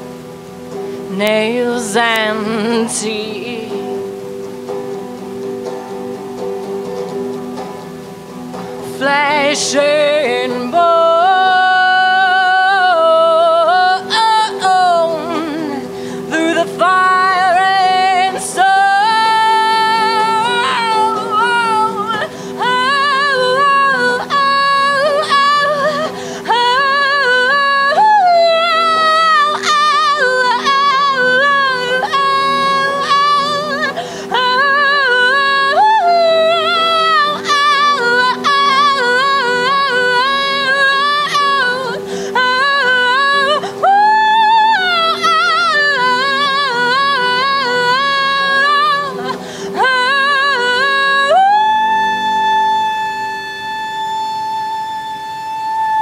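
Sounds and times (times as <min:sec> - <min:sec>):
woman singing wordless melody: 0:00.0 - 0:56.0.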